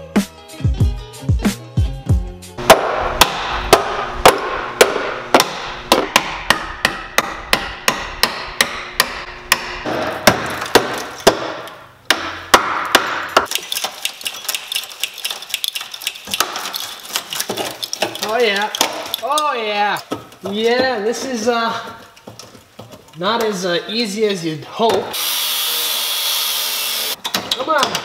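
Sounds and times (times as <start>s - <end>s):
hammer striking steel: 2.6s - 13.5s.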